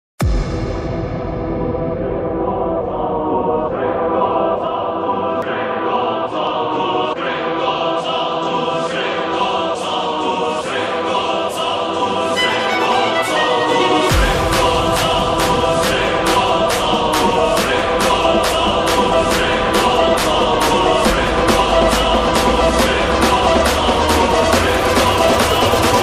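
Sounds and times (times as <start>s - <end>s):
deep bass: 0.2s - 4.4s, 14.1s - 26.0s
choir-like singing over a beat: 0.2s - 26.0s.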